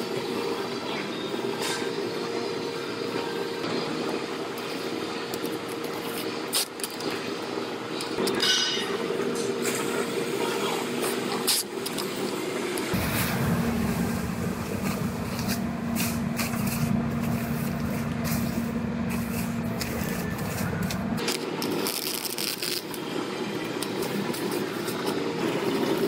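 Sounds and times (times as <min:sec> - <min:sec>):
steady low hum: 0:00.0 - 0:26.0
plastic sheeting crinkling: 0:15.5 - 0:26.0.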